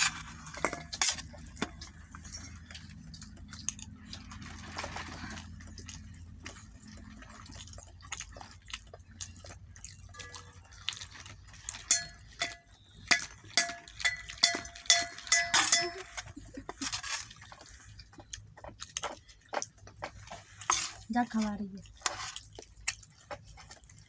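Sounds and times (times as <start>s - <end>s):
metal bowl clinking: 10.0s - 17.1s.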